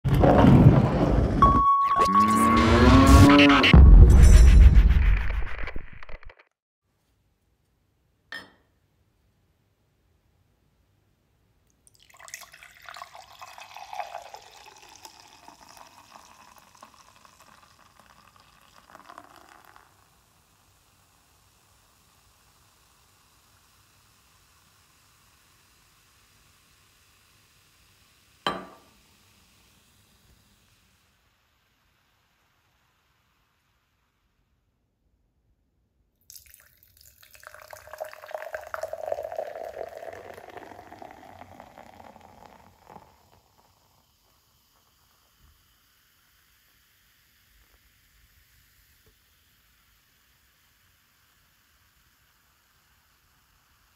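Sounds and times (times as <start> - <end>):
beer pouring into a glass: 11.8 - 30.8, 36.2 - 53.9.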